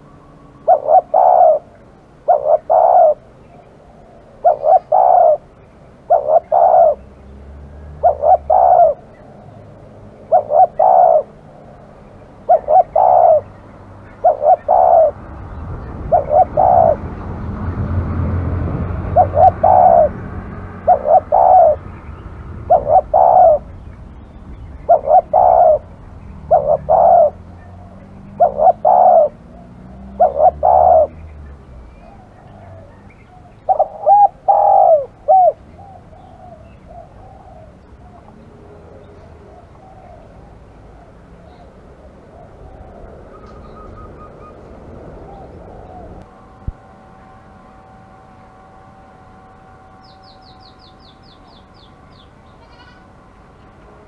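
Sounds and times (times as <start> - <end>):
dove cooing: 0.0 - 46.3
low rumbling noise: 0.0 - 54.0.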